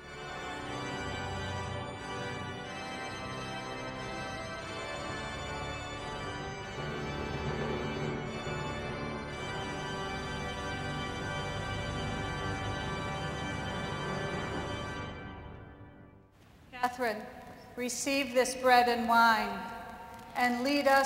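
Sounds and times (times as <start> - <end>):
pipe organ chords: 0.0 - 16.3.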